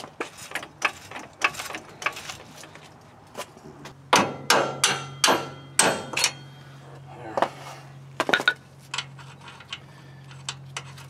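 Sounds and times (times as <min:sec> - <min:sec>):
metal-on-metal knocks: 0:04.1 - 0:06.5.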